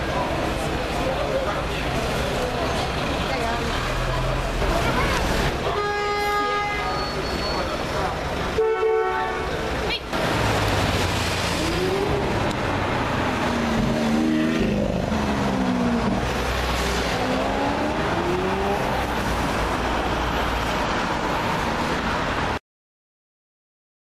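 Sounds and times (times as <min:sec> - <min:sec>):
traffic noise: 0:00.0 - 0:22.6.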